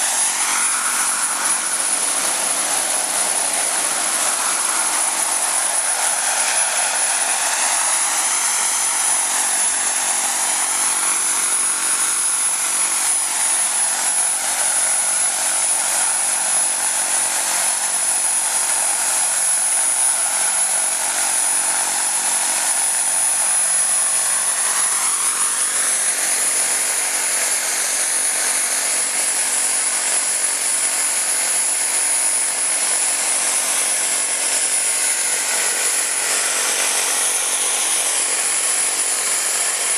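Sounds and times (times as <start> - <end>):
rotor noise: 0.0 - 15.7
model helicopter turbine whine: 0.0 - 39.9.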